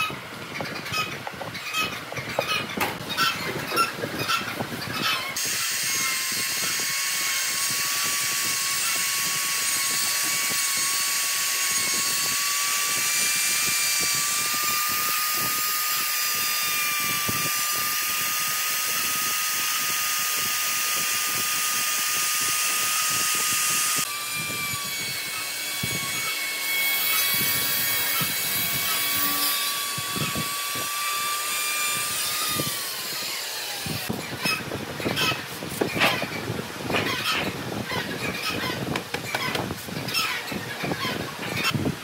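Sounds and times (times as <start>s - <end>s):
trim router whining: 5.3s - 41.8s
router bit cutting wood: 5.4s - 37.5s.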